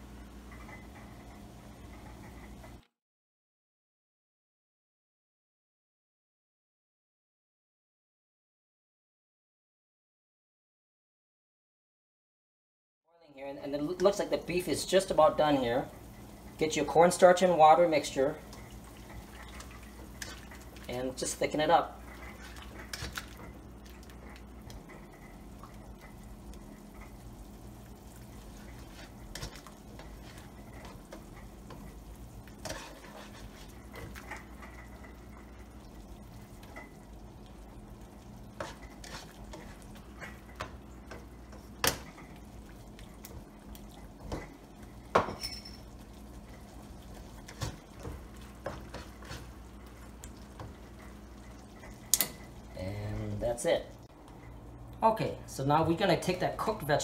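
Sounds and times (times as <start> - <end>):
spatula scraping a pan: 28.4 - 35.0, 38.5 - 40.6, 47.1 - 49.6.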